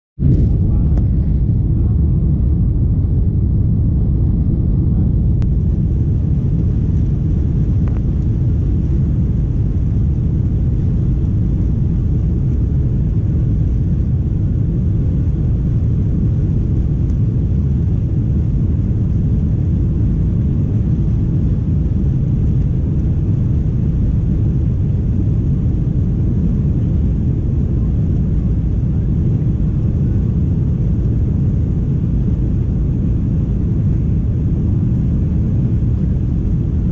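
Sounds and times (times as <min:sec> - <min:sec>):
jet engines rumbling: 0:00.2 - 0:36.9.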